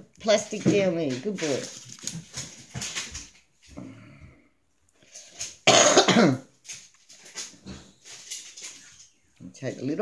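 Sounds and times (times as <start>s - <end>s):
person coughing loudly: 5.6s - 6.5s.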